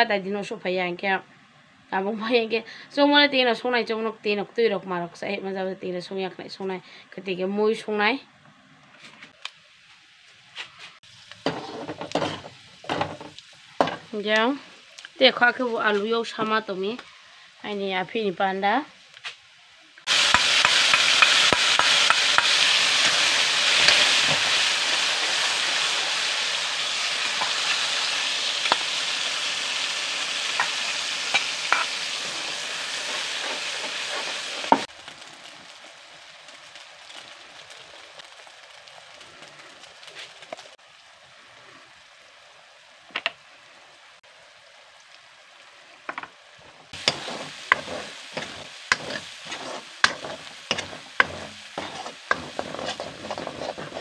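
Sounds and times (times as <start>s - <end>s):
food sizzling in hot oil: 9.3s - 54.0s
steel spoon clinking and scraping pan: 31.3s - 32.0s, 47.0s - 54.0s.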